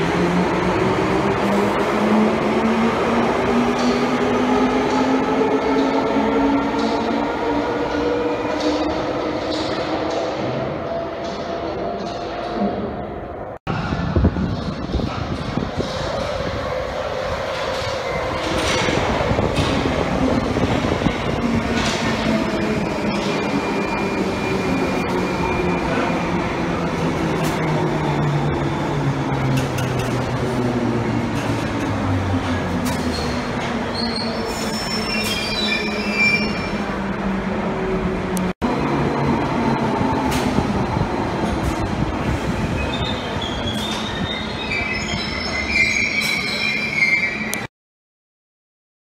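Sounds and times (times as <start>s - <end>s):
train wheels rumbling on rail: 13.7s - 46.8s
train wheels squealing: 33.1s - 36.8s, 42.6s - 47.6s.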